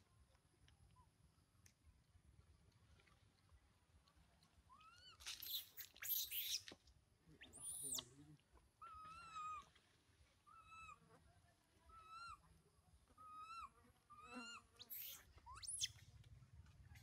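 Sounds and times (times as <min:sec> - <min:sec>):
baby monkey squealing: 0:05.4 - 0:06.6, 0:07.5 - 0:08.0, 0:13.3 - 0:16.0
baby monkey coo calls: 0:10.5 - 0:11.0, 0:11.9 - 0:12.4, 0:13.2 - 0:16.0.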